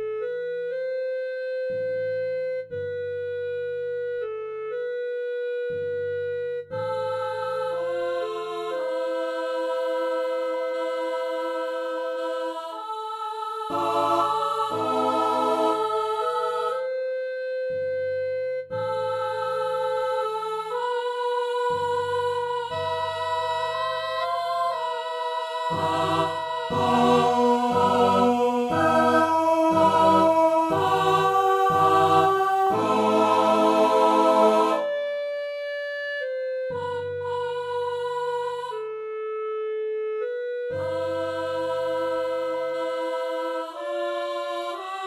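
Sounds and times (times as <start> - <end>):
clarinet melody: 0.0 - 9.9, 13.7 - 43.0
choir singing short chords: 6.9 - 16.9, 18.9 - 35.2
timpani strokes: 25.7 - 35.1.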